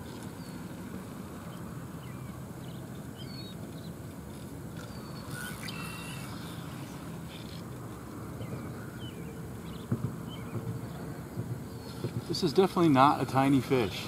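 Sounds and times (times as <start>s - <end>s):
small birds chirping: 1.4s - 7.7s, 8.3s - 11.1s
buzzy bird call: 4.8s - 7.6s.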